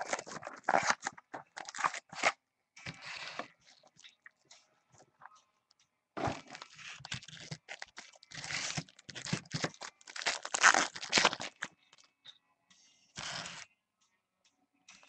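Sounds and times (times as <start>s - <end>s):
foil wrappers crinkling and tearing: 0.0s - 2.4s, 6.4s - 11.7s.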